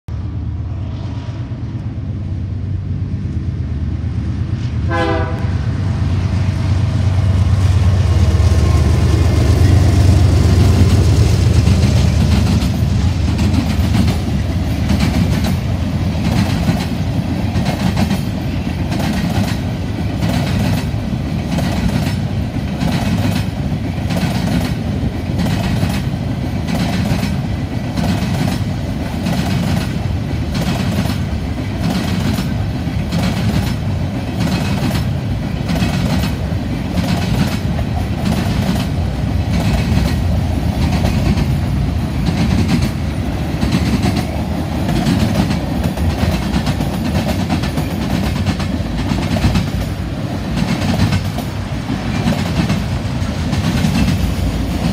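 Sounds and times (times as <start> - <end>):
diesel locomotives rumbling past: 0.1 - 54.9
train horn blast: 4.6 - 6.0
wheels clacking over rail joints: 7.1 - 54.9.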